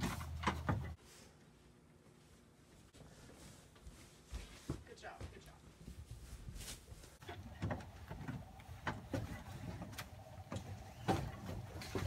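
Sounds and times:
hand truck rumbling: 0.0 - 1.0, 7.2 - 12.0.

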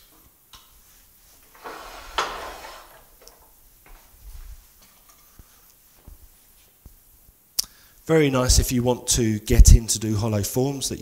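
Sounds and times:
metal scraping slide: 1.5 - 3.4.

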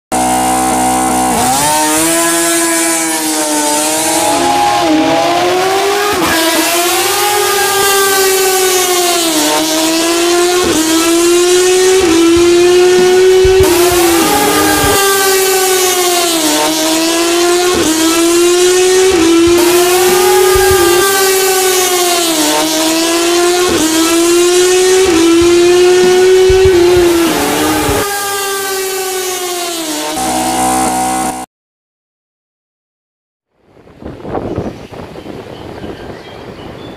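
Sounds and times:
motorcycle engine revving: 0.1 - 31.5
wind and road hiss: 33.6 - 36.9.

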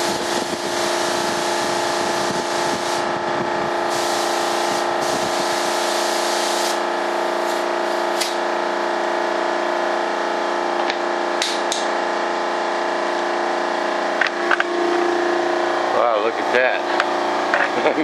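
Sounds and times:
spray gun hissing: 0.0 - 3.0, 3.9 - 8.4
air compressor humming: 0.0 - 18.0.

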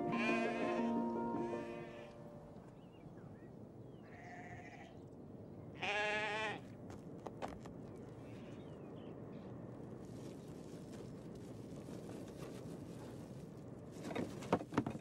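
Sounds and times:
calf bleating: 0.0 - 2.2, 4.1 - 4.9, 5.8 - 6.6.

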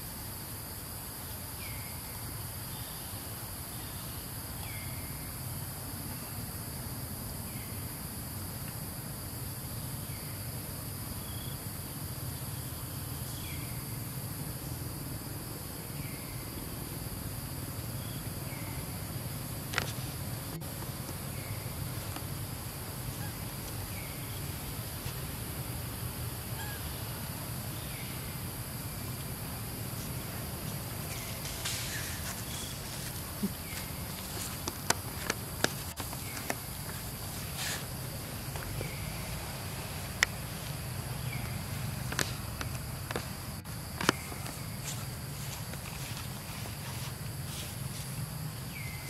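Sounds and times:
insects buzzing: 0.0 - 49.0.

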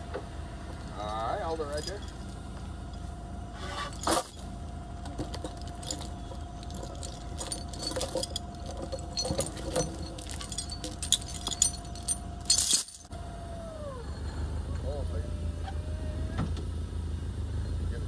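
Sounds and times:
chain clinking and rattling: 0.7 - 3.0, 3.6 - 13.1.

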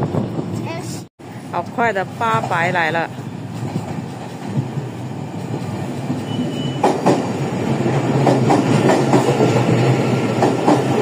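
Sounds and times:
train hum: 0.0 - 11.0
train wheels clacking over rail joints: 6.1 - 11.0.

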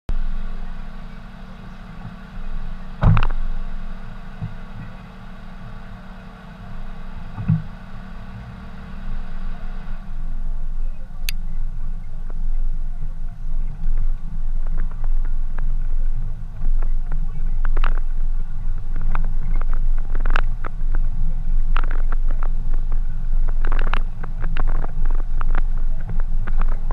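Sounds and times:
vehicle engine rumbling: 0.1 - 26.9
vehicle rolling on dirt track: 0.1 - 26.9
thumps: 3.0 - 3.7, 7.3 - 8.0.

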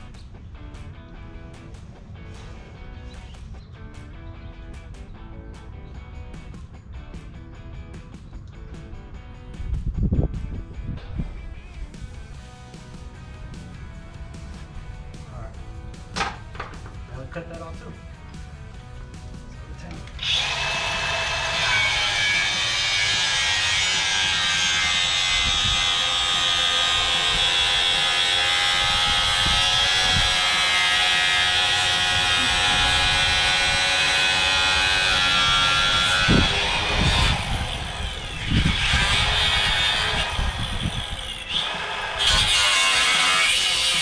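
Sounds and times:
angle grinder cutting metal: 20.0 - 44.0.

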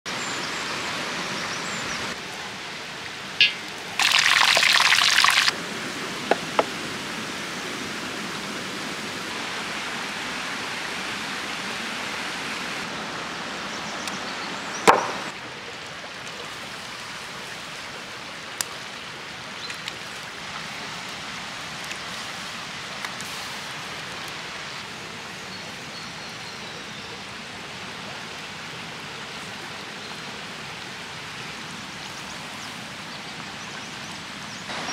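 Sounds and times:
water rushing over stones: 2.0 - 13.7
cast iron skillet clanking: 3.4 - 3.7.

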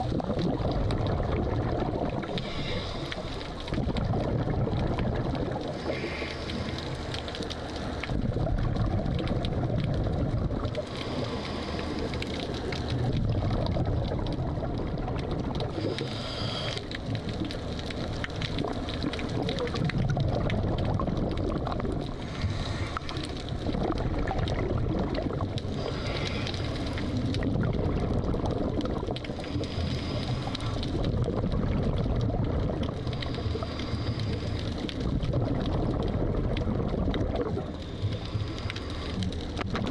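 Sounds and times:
bubbles gurgling underwater: 0.0 - 6.7, 7.9 - 38.3, 39.4 - 39.9
diver breathing through regulator: 2.4 - 3.6, 5.7 - 7.0, 10.9 - 12.4, 15.7 - 17.0, 22.1 - 23.5, 25.7 - 27.2, 29.4 - 30.9, 33.2 - 34.8, 37.8 - 39.4.

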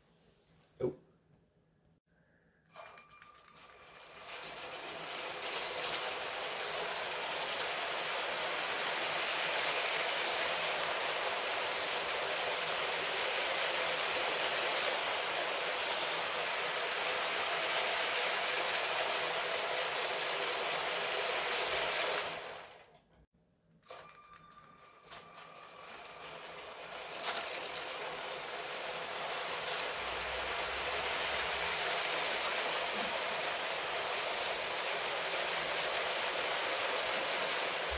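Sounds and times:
plastic wheels rattling on track: 2.7 - 23.1, 23.8 - 37.9
electric motor hum: 4.4 - 22.8.

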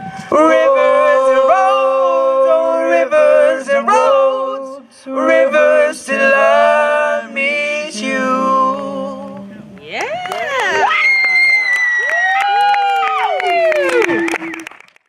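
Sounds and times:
boys singing a cappella: 0.1 - 9.8.

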